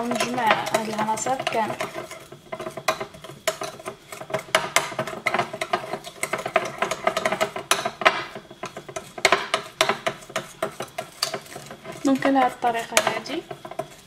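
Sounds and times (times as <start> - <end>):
metal spoon scraping a bowl: 0.0 - 14.0.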